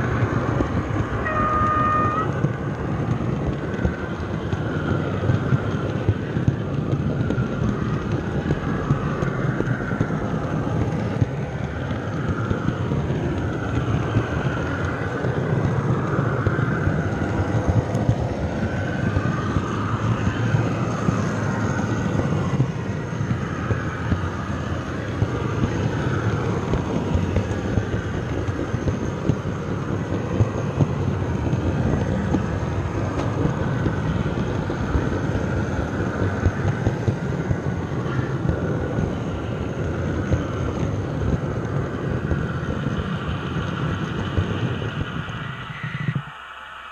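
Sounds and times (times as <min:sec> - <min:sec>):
wavering whine: 0:00.0 - 0:03.0, 0:12.8 - 0:46.9
model train wheels rumbling on rails: 0:00.0 - 0:46.9.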